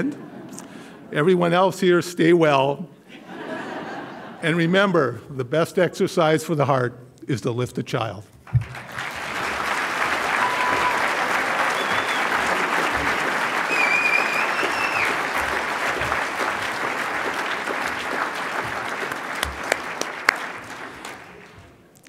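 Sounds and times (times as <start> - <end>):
audience applauding: 8.5 - 21.9
short high whistle: 11.7 - 12.3, 13.7 - 15.1.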